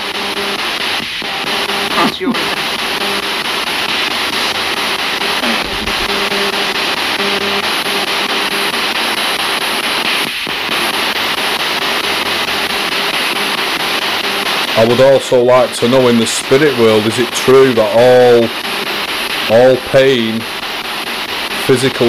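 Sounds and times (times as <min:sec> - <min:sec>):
chopped radio tone fragments: 0:00.0 - 0:22.0
radio static hiss: 0:00.0 - 0:22.0.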